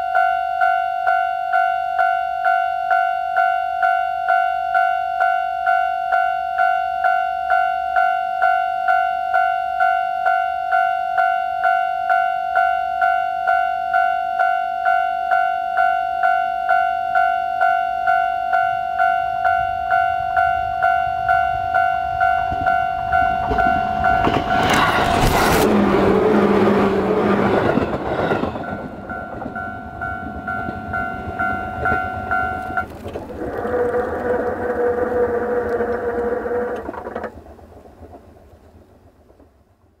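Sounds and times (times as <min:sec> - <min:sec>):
train passing: 0:16.7 - 0:40.0
crossing barriers humming: 0:19.1 - 0:38.5.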